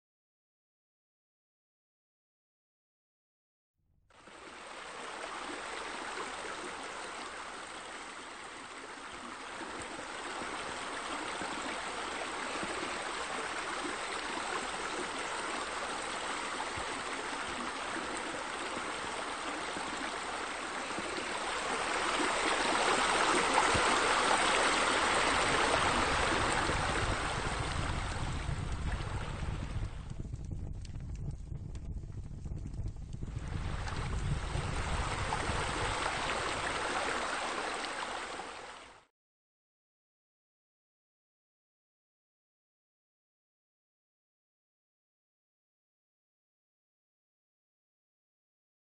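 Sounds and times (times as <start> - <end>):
waterfall splashing into pool: 4.2 - 29.8, 33.5 - 38.8.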